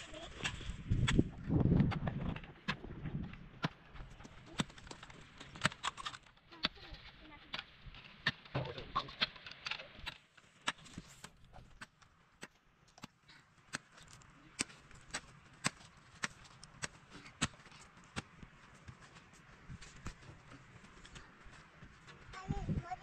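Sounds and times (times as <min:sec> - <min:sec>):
pickaxe striking stony ground: 0:00.4 - 0:18.4.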